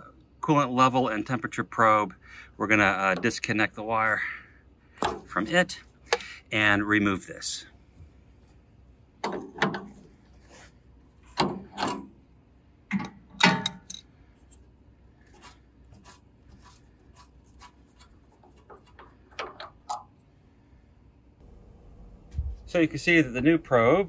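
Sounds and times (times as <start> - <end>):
sharp clicks and scraping knocks: 9.2 - 10.1, 11.2 - 12.2, 12.9 - 14.0, 16.6 - 20.2.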